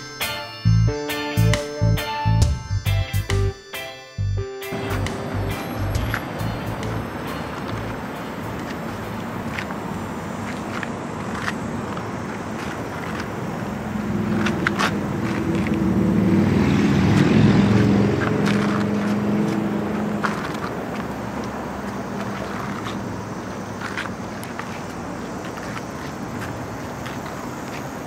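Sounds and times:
passing motor vehicle hum: 4.7s - 28.0s.

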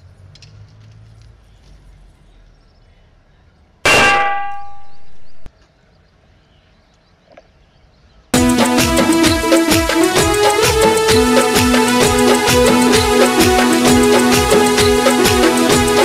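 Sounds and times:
metallic bell clang: 3.9s - 5.4s
loud music with drum beat: 8.4s - 16.0s.

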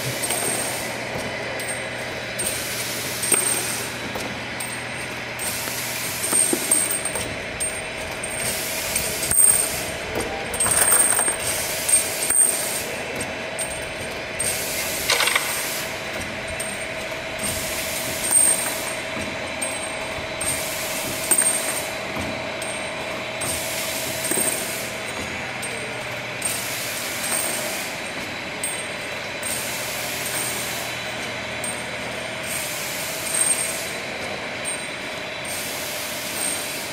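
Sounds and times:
pneumatic air hiss: 0.0s - 1.0s, 2.4s - 4.0s, 5.4s - 7.2s, 8.3s - 13.0s, 14.4s - 16.8s, 17.4s - 19.1s, 20.4s - 21.9s, 23.4s - 25.2s, 26.4s - 28.0s, 29.5s - 30.9s, 32.4s - 34.0s, 35.4s - 36.9s
machinery humming: 0.0s - 36.9s.

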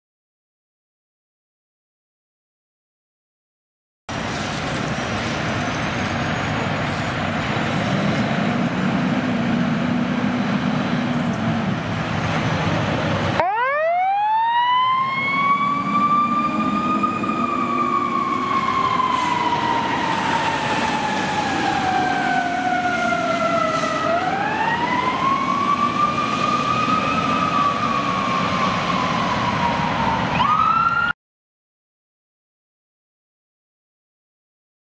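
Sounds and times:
fire truck engine: 4.1s - 31.1s
road noise: 4.1s - 31.1s
fire truck siren winding: 13.4s - 31.1s.

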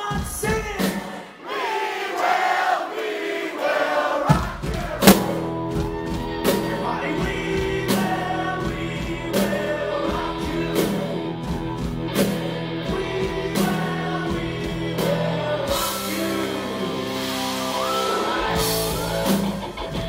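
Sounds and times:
lead and harmony vocals: 0.0s - 19.8s
strong drum hits: 4.2s - 8.0s
live rock band playing: 4.6s - 20.0s.

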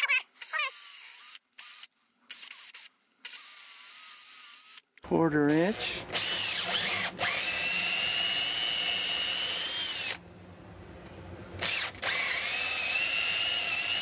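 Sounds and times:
cordless drill boring into wood: 5.7s - 10.2s, 11.6s - 14.0s.

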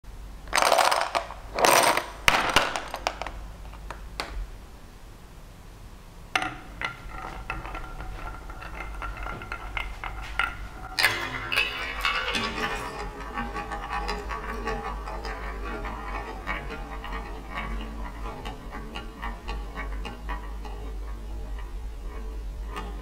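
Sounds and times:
plastic balls clattering in a tub: 0.5s - 3.4s
ball knocking against track walls: 0.5s - 4.4s, 6.4s - 17.1s
ball rolling along wooden track: 0.5s - 4.4s, 6.4s - 23.0s.

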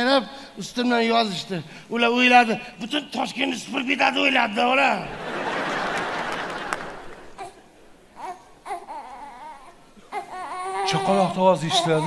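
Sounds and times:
audience laughing and clapping: 5.0s - 7.4s
baby crying: 7.4s - 7.6s, 8.2s - 12.0s.

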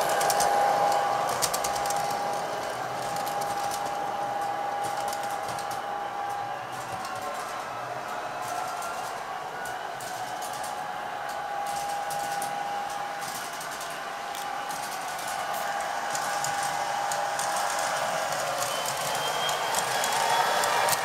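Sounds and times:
model locomotive whine and hum: 0.0s - 21.0s
wheels clicking over rails: 0.0s - 21.0s.

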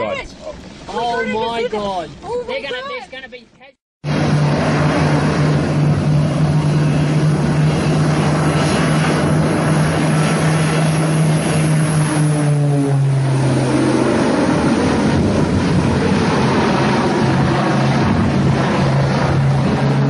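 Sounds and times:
propeller airplane droning: 4.0s - 20.0s.

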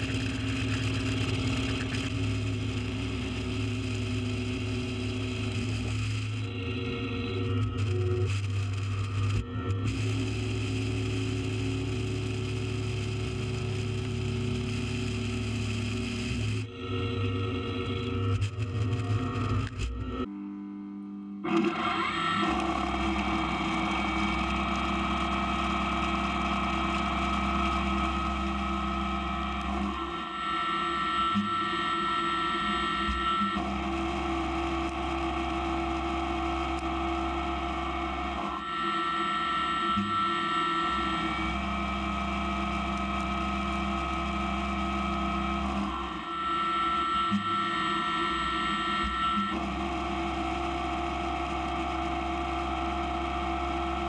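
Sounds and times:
milling machine hum and whine: 0.0s - 20.5s, 21.4s - 54.0s.

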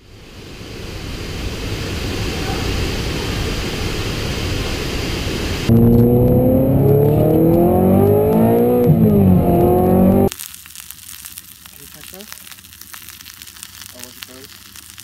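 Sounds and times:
car engine accelerating hard: 5.6s - 10.3s.

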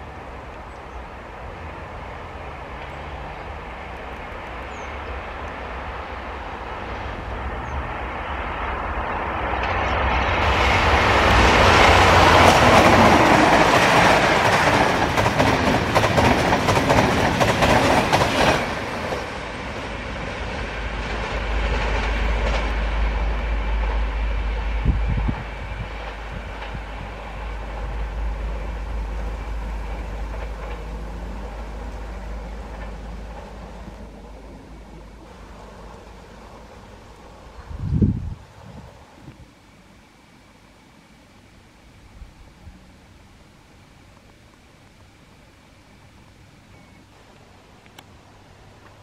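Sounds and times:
train rumble: 0.0s - 49.0s
wheel clatter over rail joints: 25.3s - 36.2s.

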